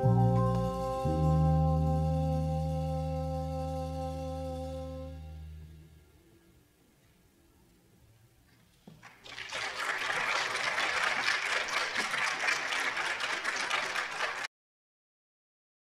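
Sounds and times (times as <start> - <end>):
audience applauding: 9.0 - 14.5.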